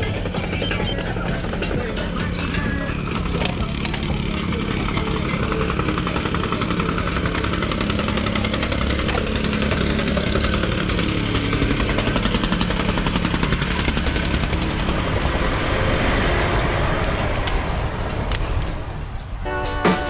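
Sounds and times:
diesel engines running: 0.0 - 20.0
clattering from roadworks: 1.0 - 16.7.

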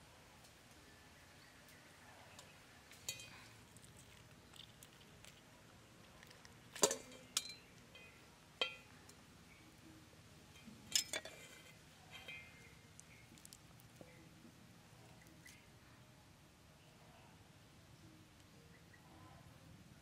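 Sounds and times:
clinks on steel bowl: 3.0 - 3.5, 6.8 - 8.9, 10.6 - 12.7.

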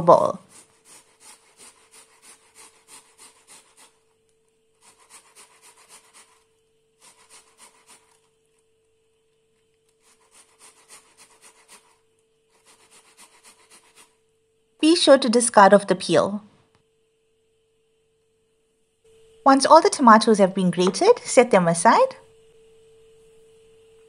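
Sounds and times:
tomato rasping on grater: 0.5 - 4.0, 4.8 - 8.3, 10.0 - 12.0, 12.6 - 14.2.

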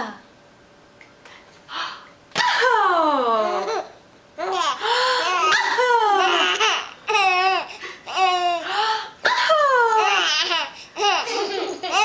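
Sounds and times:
baby laughing: 3.4 - 8.6, 9.9 - 12.0.

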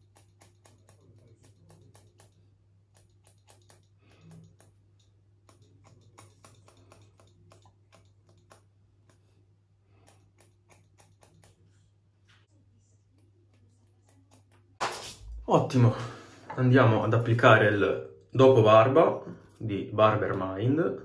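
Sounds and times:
scissors snipping hair: 0.0 - 9.3, 10.0 - 11.8, 13.1 - 15.2.

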